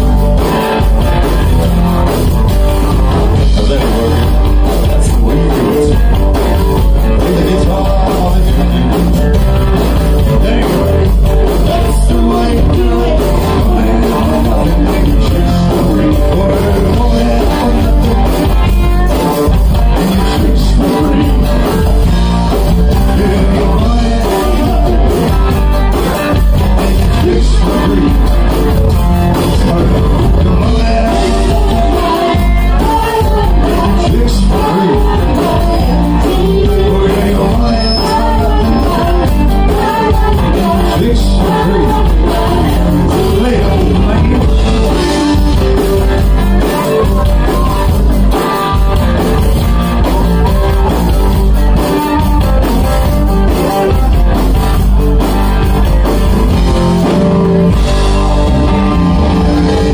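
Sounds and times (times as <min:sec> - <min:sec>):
rock band playing: 0:00.0 - 0:59.9
woman singing: 0:30.7 - 0:44.3.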